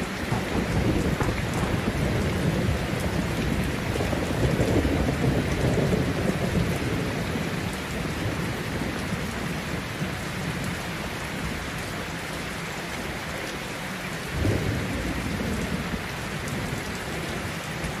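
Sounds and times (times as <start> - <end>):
thunder rumbling: 0.0 - 10.8, 14.3 - 17.5
heavy rain: 0.0 - 18.0.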